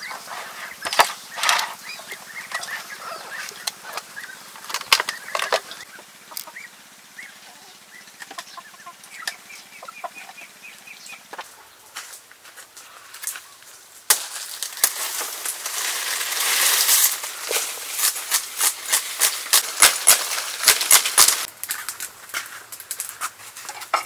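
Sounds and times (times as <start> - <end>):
chickens clucking: 0.0 - 12.2.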